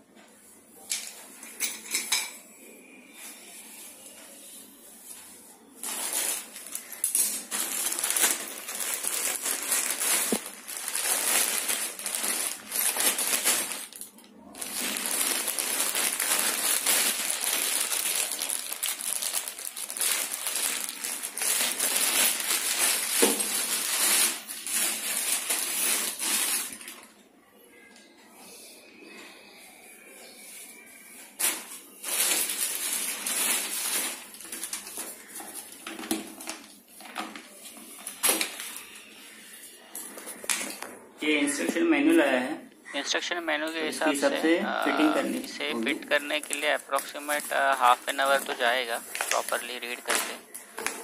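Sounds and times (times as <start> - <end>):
plastic bags crinkling: 5.1 - 27.2, 30.8 - 41.0, 43.7 - 51.0.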